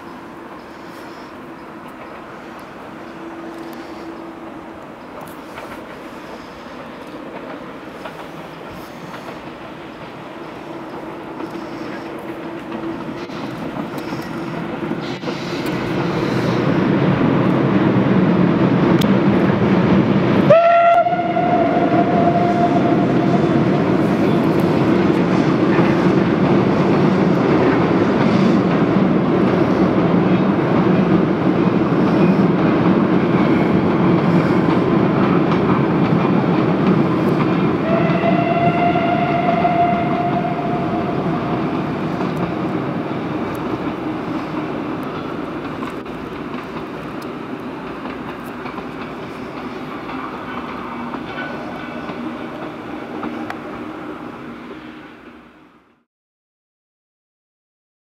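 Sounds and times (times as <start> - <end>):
steam locomotive rumbling: 0.0 - 56.0
steam whistle blasts: 20.5 - 23.4, 37.8 - 41.5.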